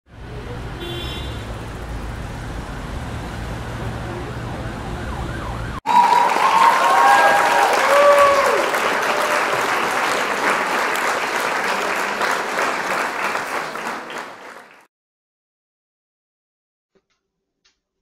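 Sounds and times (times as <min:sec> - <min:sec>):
crowd cheering with whistles: 0:05.0 - 0:14.8.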